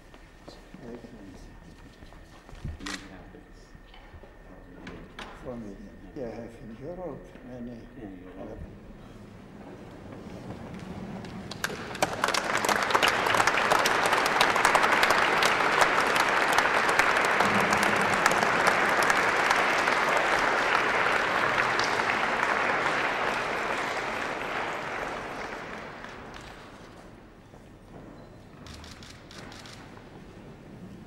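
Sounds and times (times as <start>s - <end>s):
people applauding: 10.2s - 27.3s.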